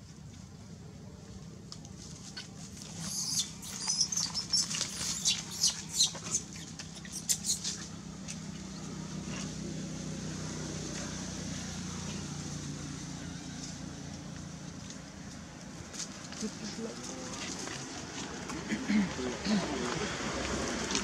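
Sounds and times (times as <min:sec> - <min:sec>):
monkey squeaking: 0:02.4 - 0:07.9.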